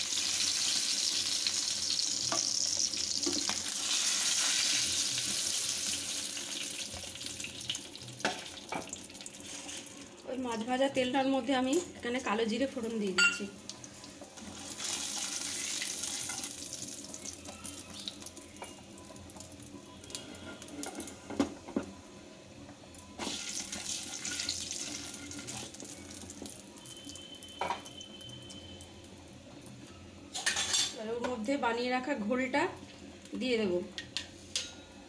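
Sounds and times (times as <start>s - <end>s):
seeds sizzling in hot oil: 0.0s - 10.8s, 13.7s - 21.2s, 23.2s - 29.2s.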